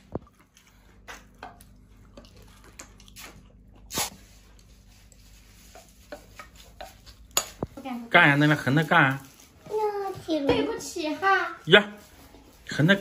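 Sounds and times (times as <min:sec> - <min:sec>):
mouth eating noises: 0:00.0 - 0:04.3.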